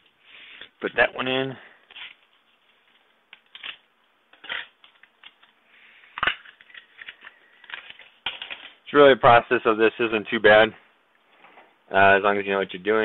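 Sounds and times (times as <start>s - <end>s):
plastic packaging clicks and rustles: 1.9s - 8.8s.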